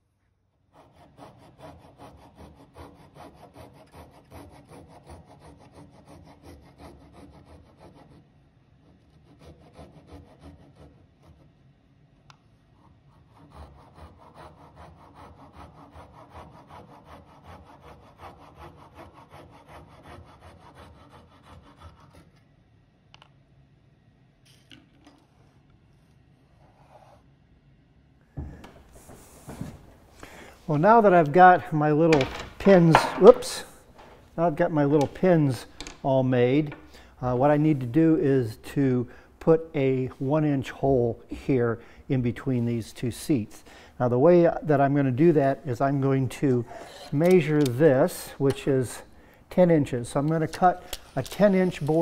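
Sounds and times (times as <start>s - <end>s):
handsaw cutting wood: 0.7s - 8.2s, 9.0s - 11.4s, 13.2s - 22.3s.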